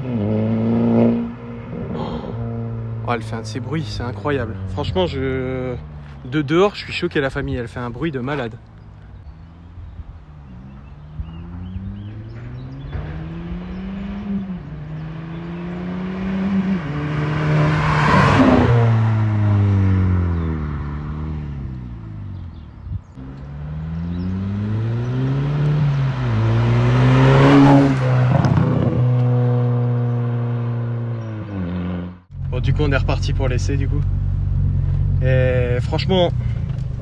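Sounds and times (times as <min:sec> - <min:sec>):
car engine accelerating past: 0:10.5 - 0:22.6, 0:23.2 - 0:32.5.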